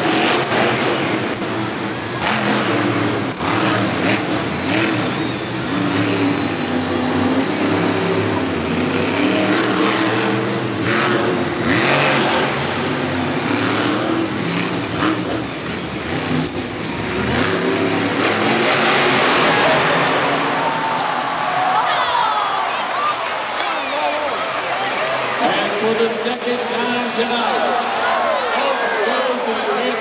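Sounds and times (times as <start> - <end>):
truck engine revving hard: 0.0 - 21.6.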